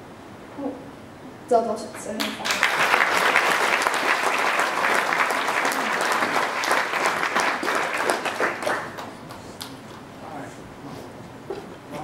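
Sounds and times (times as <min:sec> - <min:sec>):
audience applauding: 0:02.2 - 0:09.9.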